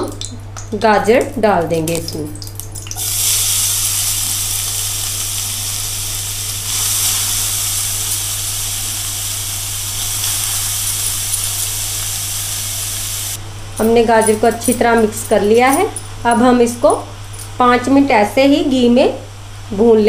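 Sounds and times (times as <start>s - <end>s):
carrots sizzling in hot fat: 3.0s - 13.4s.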